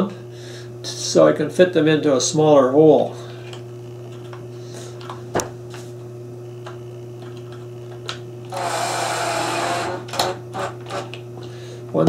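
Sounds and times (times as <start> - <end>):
cordless drill driving screw: 8.5 - 11.1.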